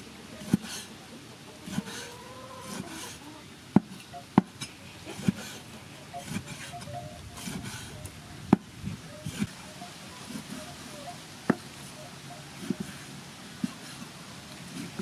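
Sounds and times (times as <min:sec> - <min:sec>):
cleaver chopping on wooden block: 0:03.7 - 0:04.6.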